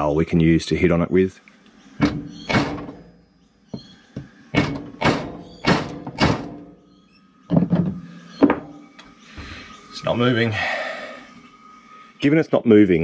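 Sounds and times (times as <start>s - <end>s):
hammer striking wooden dowel: 2.0s - 2.9s, 3.8s - 6.7s.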